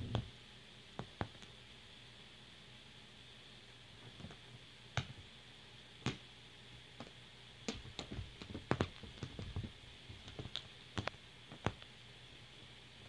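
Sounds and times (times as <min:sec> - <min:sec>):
kitten paws patting on fabric cushion: 0:07.0 - 0:11.9.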